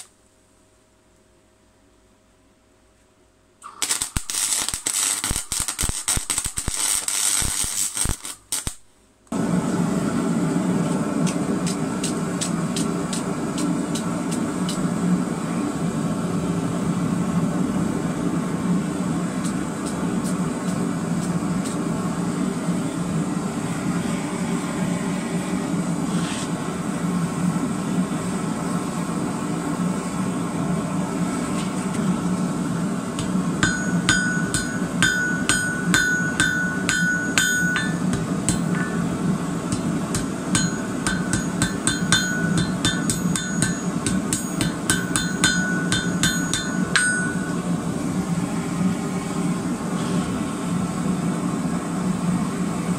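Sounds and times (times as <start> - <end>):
low hum: 9.3 - 52.9
hammer striking metal on anvil: 33.2 - 47.7.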